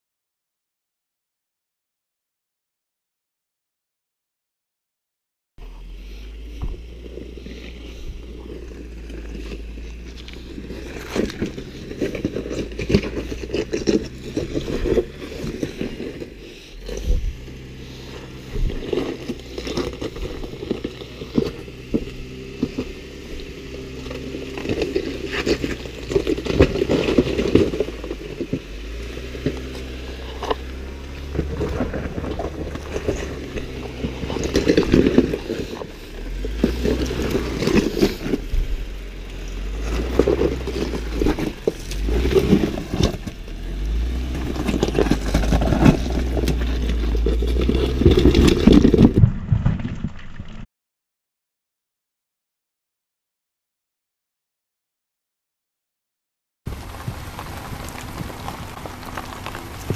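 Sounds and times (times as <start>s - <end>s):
engine running at low revs: 5.6s - 49.6s, 56.7s - 59.9s
tires crunching over rock: 5.6s - 50.7s, 56.7s - 59.9s.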